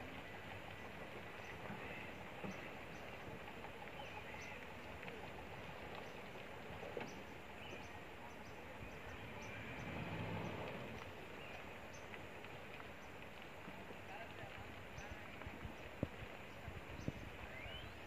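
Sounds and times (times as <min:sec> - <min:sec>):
steady outdoor hiss: 0:00.0 - 0:18.0
distant pickup engine: 0:09.1 - 0:11.6.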